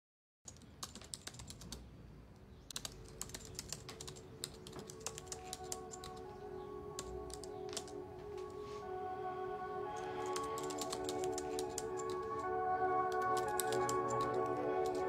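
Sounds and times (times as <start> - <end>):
laptop keyboard typing: 0.5 - 1.8, 2.7 - 6.3, 7.0 - 8.0, 9.9 - 15.0
soft music: 2.9 - 15.0.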